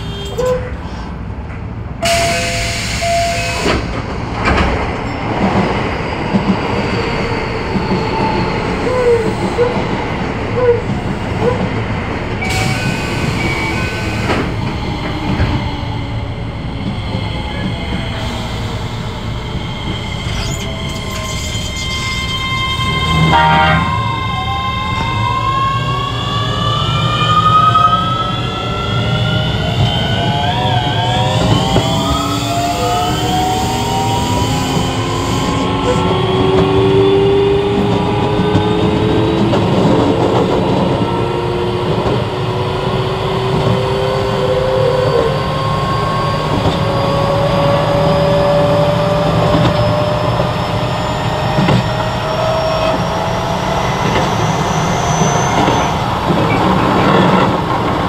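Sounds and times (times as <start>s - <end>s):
train traction motor whine: 18.0s - 27.0s.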